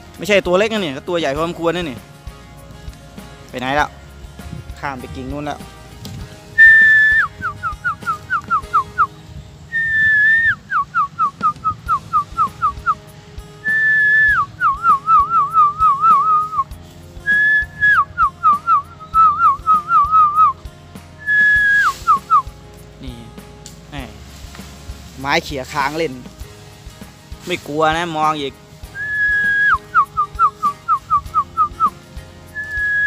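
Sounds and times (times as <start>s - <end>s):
person whistling: 6.6s - 9.1s, 9.7s - 13.0s, 13.6s - 16.7s, 17.3s - 20.6s, 21.2s - 22.5s, 29.0s - 32.0s, 32.6s - 33.0s.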